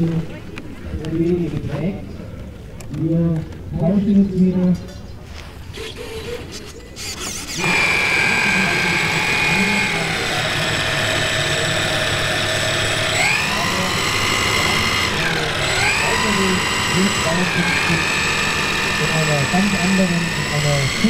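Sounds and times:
electric motors whining: 0:05.6 - 0:21.0.

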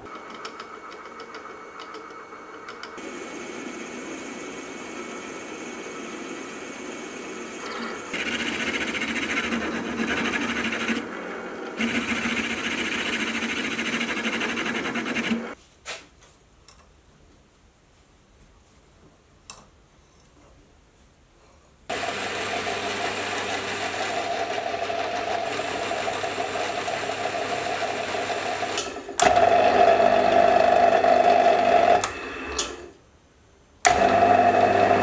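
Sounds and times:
milling machine motor humming: 0:03.0 - 0:15.6, 0:21.9 - 0:32.9, 0:33.9 - 0:35.0
drill cutting steel: 0:07.6 - 0:15.6.

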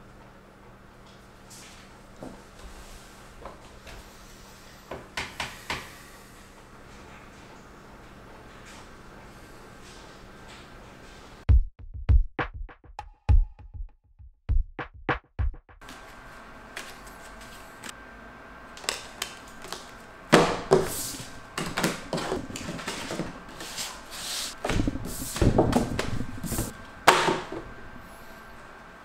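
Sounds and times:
room hum: 0:00.0 - 0:11.4, 0:15.8 - 0:29.0
electronic drum beat: 0:11.5 - 0:15.8, 0:24.6 - 0:26.7.

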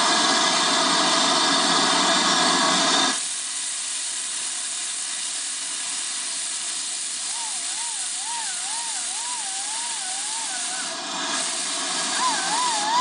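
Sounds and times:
steam locomotive hissing: 0:03.1 - 0:13.0.

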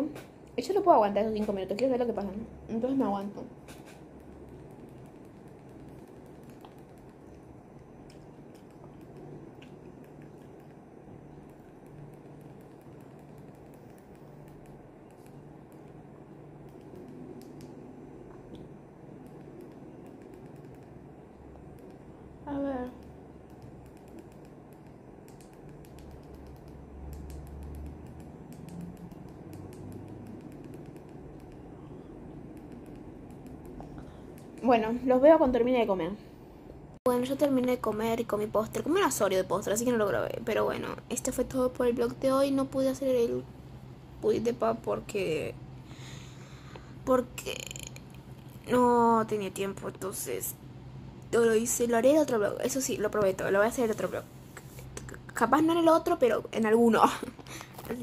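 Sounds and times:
low steady hum: 0:00.0 - 0:58.0
eating clicks and taps: 0:23.0 - 0:31.7.

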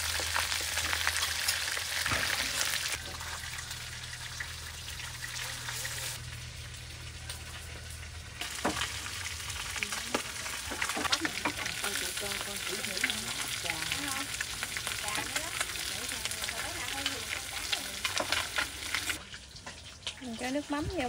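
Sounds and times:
fish frying in hot oil: 0:00.0 - 0:21.0
low steady hum: 0:03.0 - 0:18.2.

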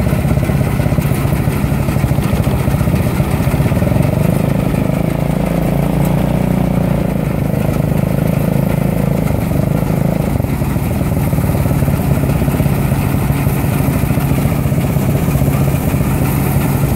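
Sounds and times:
combine harvester running: 0:00.0 - 0:16.9.

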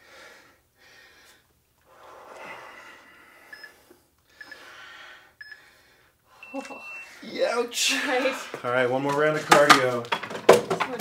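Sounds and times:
people breathing hard: 0:00.0 - 0:06.6
electronic countdown beeps: 0:03.5 - 0:03.7, 0:04.4 - 0:04.6, 0:06.4 - 0:07.2.

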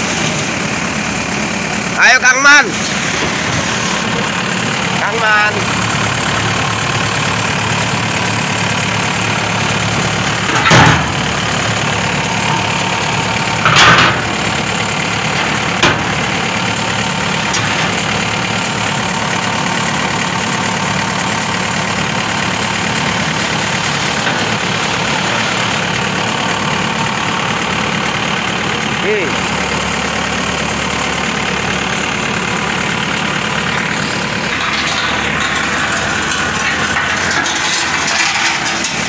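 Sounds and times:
diesel engine idling: 0:00.0 - 0:39.0
steel ramps clanging: 0:02.4 - 0:27.5, 0:33.3 - 0:39.0.

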